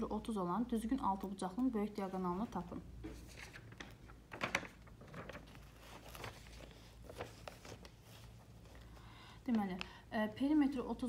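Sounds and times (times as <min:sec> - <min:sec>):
paper rustling and sliding: 0:03.0 - 0:09.0.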